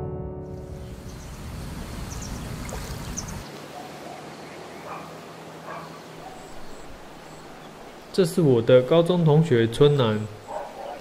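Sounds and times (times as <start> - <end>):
open air hiss: 0.8 - 3.7.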